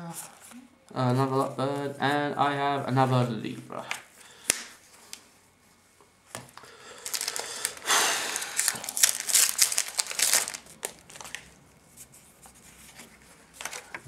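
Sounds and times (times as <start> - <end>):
wrapper crinkling and tearing: 7.0 - 11.6.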